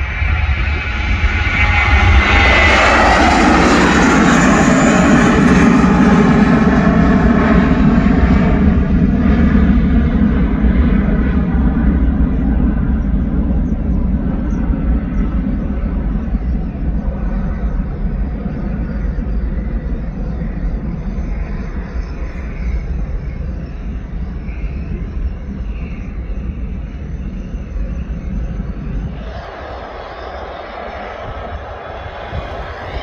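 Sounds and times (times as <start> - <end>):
jet airliner taking off: 0.0 - 33.0.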